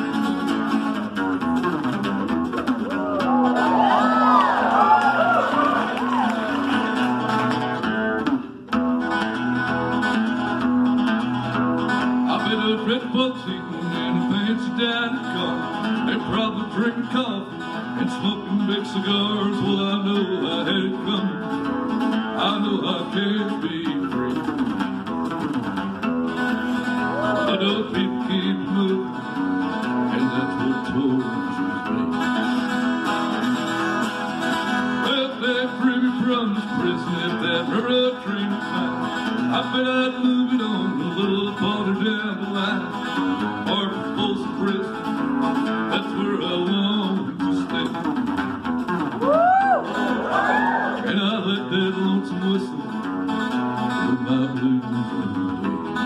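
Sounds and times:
acoustic guitar strumming: 0.0 - 56.0
man singing: 11.9 - 25.5, 26.8 - 32.2, 34.5 - 48.4, 50.8 - 56.0.

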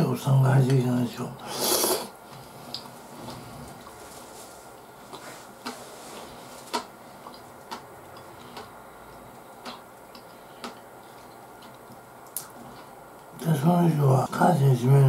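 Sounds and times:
soft chewing: 2.3 - 13.4.

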